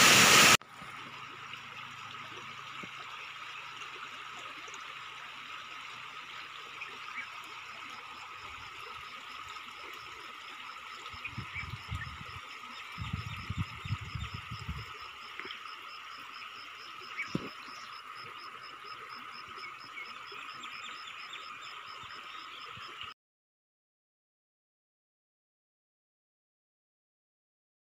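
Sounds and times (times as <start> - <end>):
frogs calling: 0.8 - 23.1.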